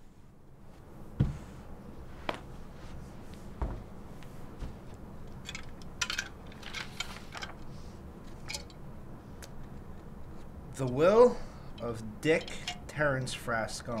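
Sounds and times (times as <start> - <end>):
low room hum: 0.0 - 14.0
soft thump: 1.2 - 1.5, 3.6 - 3.8.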